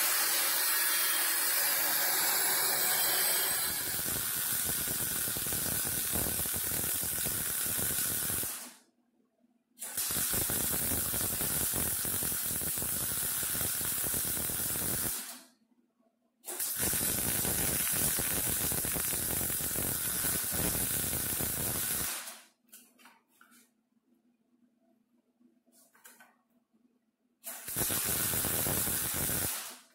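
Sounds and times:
welder arc crackling: 3.3 - 8.8, 9.8 - 15.4, 16.5 - 22.4, 27.5 - 29.9.

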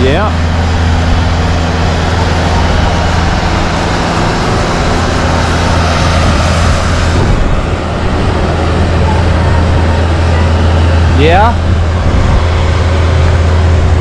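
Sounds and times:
broad rushing noise: 0.0 - 14.0
low engine rumble: 0.0 - 14.0.

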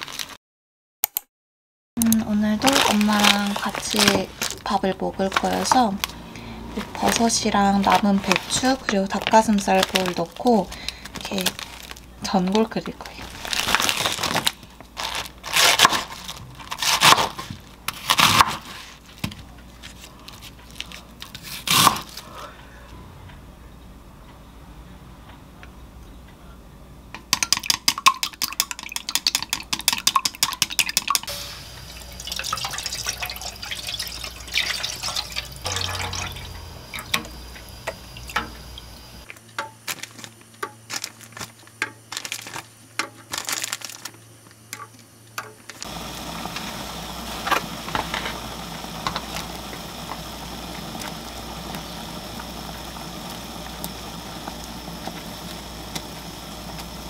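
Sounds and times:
chopsticks beating eggs in bowl: 27.2 - 31.3
broth simmering with hiss: 31.2 - 39.3, 44.7 - 57.0.

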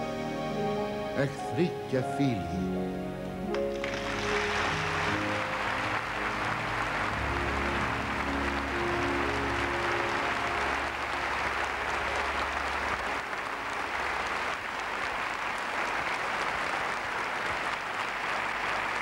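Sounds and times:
low keyboard chord: 0.0 - 13.5
audience applauding: 3.5 - 19.0.

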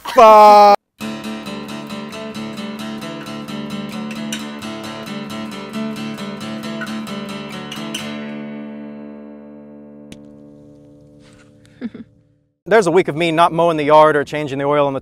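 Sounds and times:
acoustic guitar strumming: 0.8 - 12.5.

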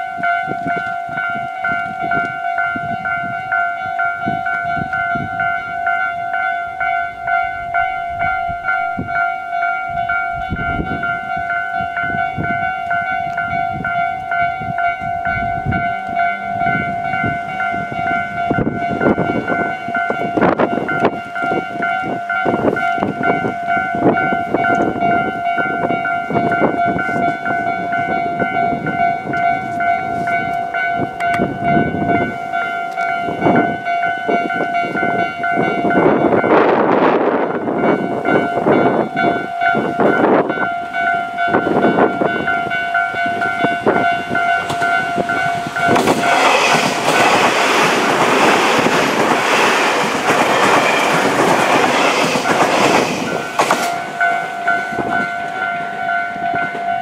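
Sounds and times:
level-crossing warning bell: 0.0 - 57.0
train wheels clattering: 17.3 - 57.0.

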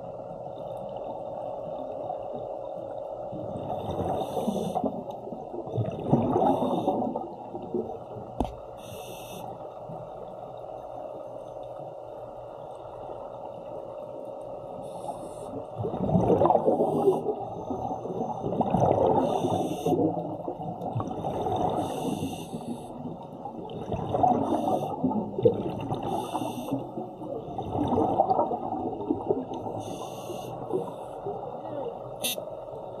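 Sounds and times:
bubbling exhaled air underwater: 3.3 - 8.1, 15.5 - 31.9
hissing regulator inhalations: 8.8 - 9.4, 26.1 - 26.8.

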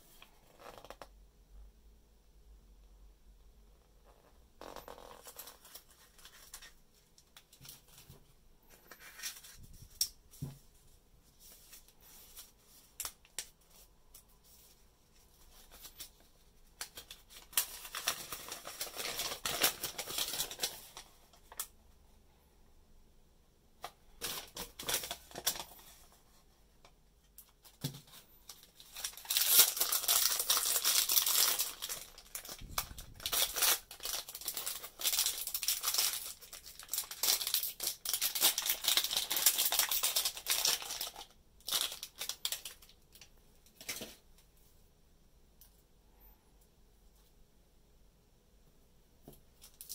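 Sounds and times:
wrapper crinkling and rustling: 4.6 - 8.2, 14.7 - 21.7, 24.2 - 26.1, 27.4 - 44.2.

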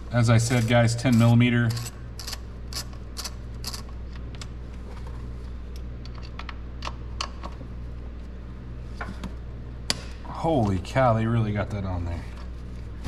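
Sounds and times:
steady low hum: 0.0 - 13.0
ratchet clicking: 1.6 - 3.9.

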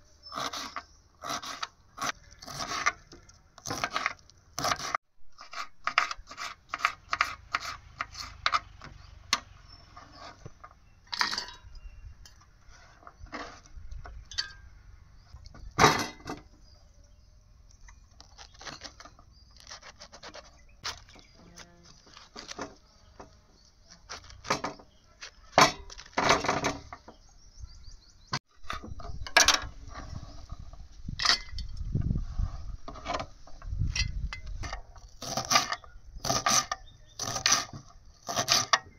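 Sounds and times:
utensils knocking and scraping: 5.6 - 14.7, 24.1 - 27.2, 28.6 - 32.2, 32.8 - 38.9.

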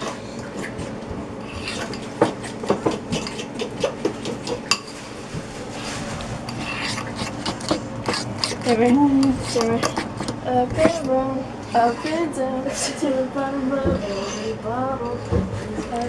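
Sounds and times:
fork mashing thick mixture: 0.0 - 13.0, 13.8 - 16.0.

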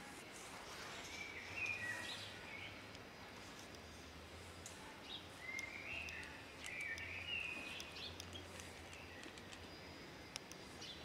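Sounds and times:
low outdoor hum: 0.0 - 11.0
small birds chirping: 0.7 - 11.0
faint clicks: 5.5 - 7.1, 7.7 - 9.7, 10.3 - 10.6.

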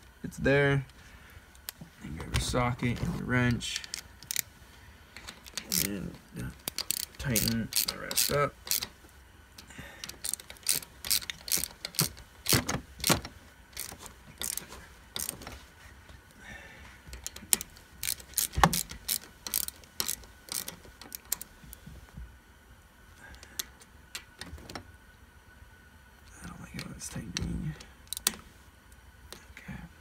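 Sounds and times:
socket ratchet clicking: 3.7 - 4.5, 5.2 - 9.0, 10.0 - 15.4, 17.2 - 21.5, 26.8 - 28.4
metal parts clinking: 5.2 - 8.9, 10.0 - 14.6, 17.2 - 21.5.

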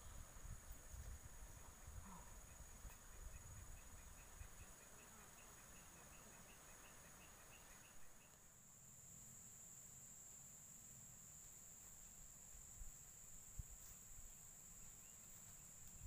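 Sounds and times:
insects buzzing: 0.0 - 16.0
faint chirps: 1.5 - 9.4, 12.8 - 16.0.

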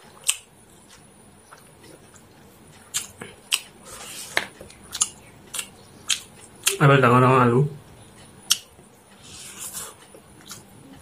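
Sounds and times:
wet lip smacks and chewing: 0.2 - 3.7, 4.7 - 6.8.

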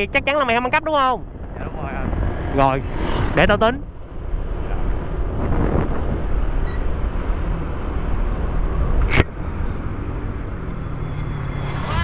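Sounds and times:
scooter engine drone: 0.7 - 12.0
wind rush on microphone: 1.2 - 10.0.

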